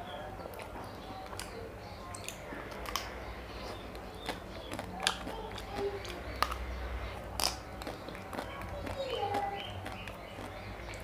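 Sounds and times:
chewing: 0.5 - 11.0
chocolate shell cracking: 7.3 - 8.5.

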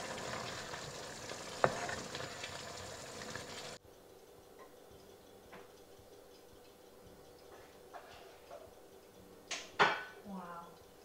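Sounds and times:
curry sizzling in a frying pan: 0.0 - 3.8
spoon tapping pan: 1.5 - 2.3.

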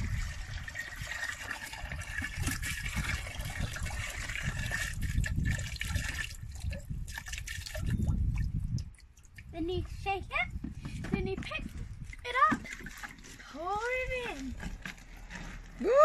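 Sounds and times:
water pouring into plastic bucket: 0.0 - 9.4, 12.0 - 13.5.

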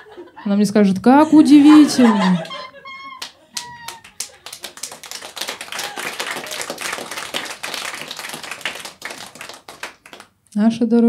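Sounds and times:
audience clapping: 2.0 - 10.4.

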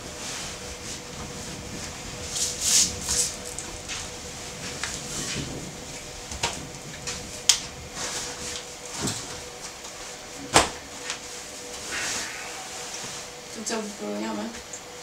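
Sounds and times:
rustling on wooden bunk bed: 0.0 - 13.9
faint steady hum: 0.0 - 15.0.

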